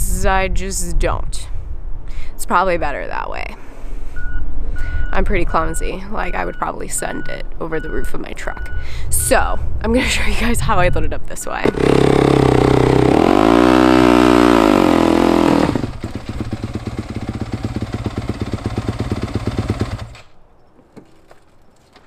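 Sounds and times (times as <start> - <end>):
dirt bike engine revving: 11.6 - 20.2.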